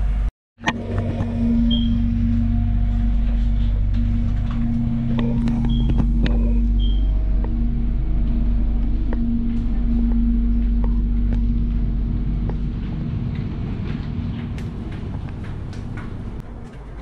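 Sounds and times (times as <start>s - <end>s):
train rumble and hum: 0.0s - 17.0s.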